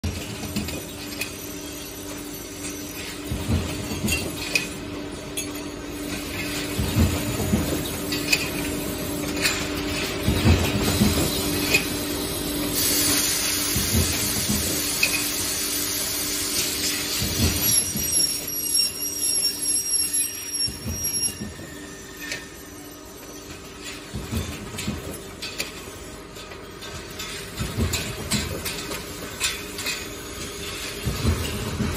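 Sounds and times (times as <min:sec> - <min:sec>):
hiss: 0:12.7 - 0:18.4
metallic clanks and knocks: 0:23.5 - 0:31.9.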